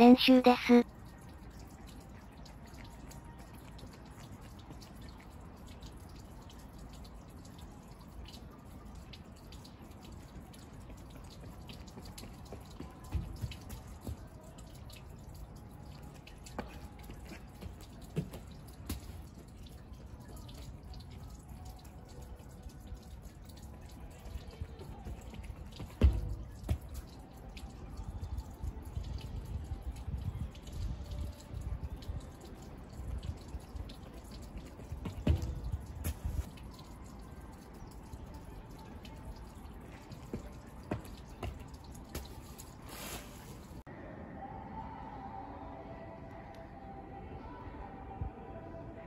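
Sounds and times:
water dripping ticks: 0:00.0 - 0:43.8
footfalls on wet track: 0:10.6 - 0:14.8, 0:24.4 - 0:27.3, 0:33.8 - 0:36.6, 0:39.8 - 0:43.8.

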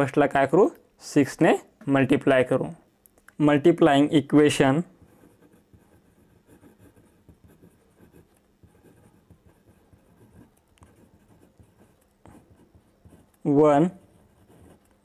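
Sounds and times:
pen scratching on paper: 0:04.9 - 0:15.0.

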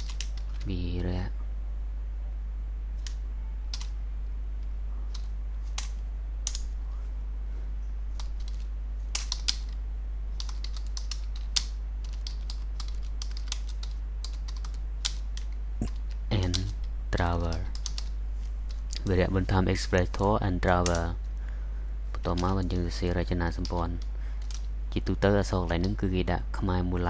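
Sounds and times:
typing on computer keyboard: 0:00.0 - 0:00.7, 0:03.0 - 0:03.9, 0:05.1 - 0:06.6, 0:08.2 - 0:09.8, 0:10.4 - 0:16.8, 0:17.4 - 0:18.1, 0:23.5 - 0:24.7
steady low hum: 0:00.0 - 0:27.0.

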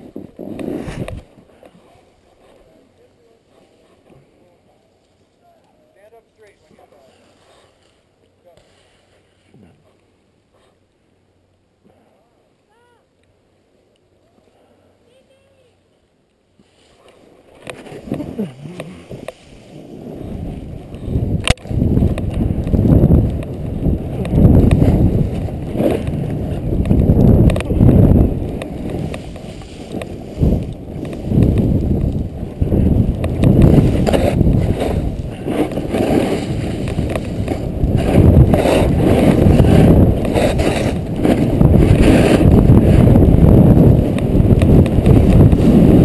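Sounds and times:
snowboard sliding through snow: 0:00.0 - 0:02.7, 0:16.6 - 0:46.0
wind buffeting microphone: 0:17.7 - 0:46.0.

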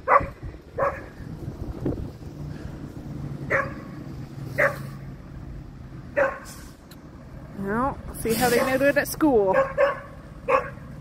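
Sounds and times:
dogs barking: 0:00.0 - 0:01.2, 0:03.4 - 0:05.0, 0:06.1 - 0:06.5, 0:09.5 - 0:10.9
bus engine droning: 0:00.0 - 0:11.0.

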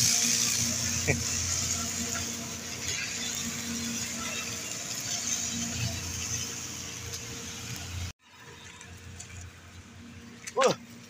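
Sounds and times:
steady machine hum: 0:00.0 - 0:08.1
general work noise: 0:00.0 - 0:11.0.

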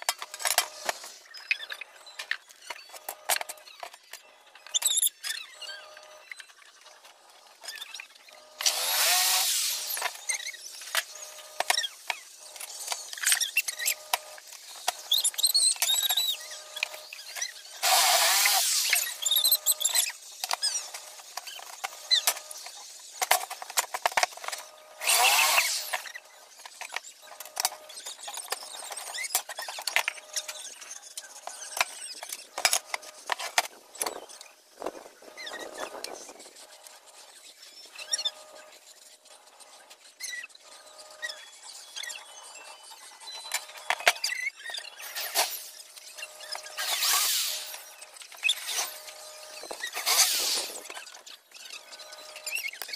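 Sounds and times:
cordless drill driving screws: 0:08.6 - 0:12.0, 0:12.7 - 0:22.4, 0:25.0 - 0:26.1, 0:46.5 - 0:47.9, 0:48.5 - 0:51.0.

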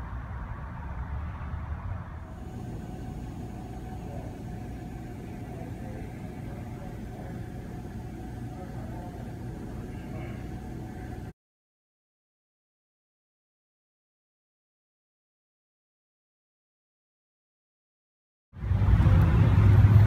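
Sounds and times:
low mechanical hum: 0:00.0 - 0:11.4, 0:18.6 - 0:20.0
faint steady tone: 0:02.2 - 0:11.3.

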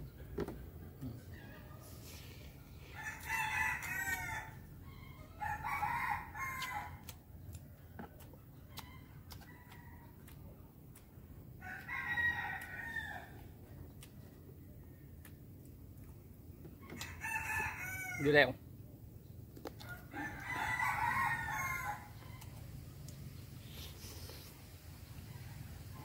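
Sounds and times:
rooster crowing: 0:02.9 - 0:07.0, 0:11.6 - 0:13.4, 0:16.9 - 0:18.5, 0:19.9 - 0:22.5.

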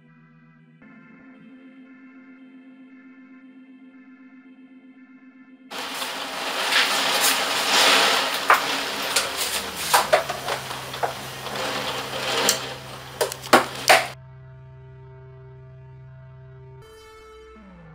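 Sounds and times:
dense rattling with clicks: 0:05.7 - 0:14.2.

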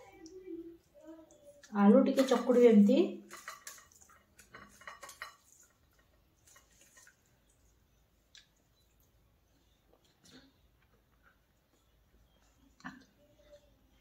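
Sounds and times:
dishes clicking and tapping: 0:01.6 - 0:02.6, 0:03.2 - 0:07.2.

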